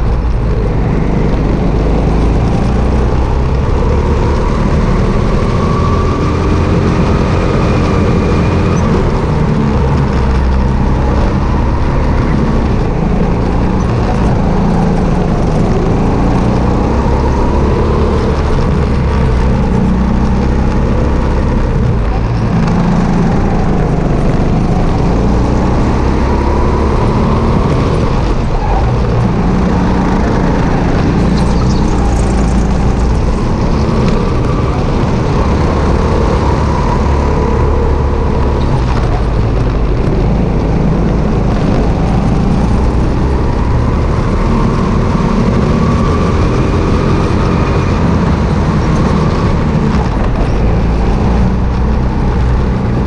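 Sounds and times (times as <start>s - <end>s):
kart engine running hard: 0.0s - 53.0s
other kart engines: 0.0s - 53.0s.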